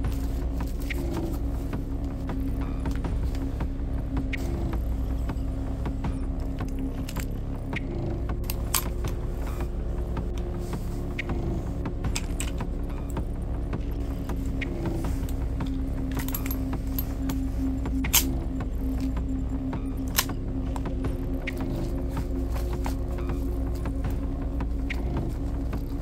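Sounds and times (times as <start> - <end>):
steady low hum: 0.0 - 26.0
revolver cylinder clicks: 18.0 - 19.1, 19.8 - 21.6.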